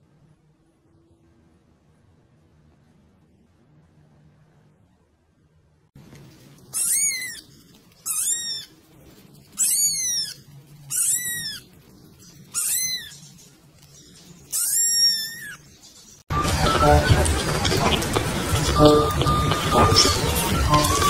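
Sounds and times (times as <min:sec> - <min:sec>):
kitten meowing: 0:06.7 - 0:08.7, 0:09.6 - 0:11.7, 0:12.5 - 0:13.2, 0:14.5 - 0:15.6.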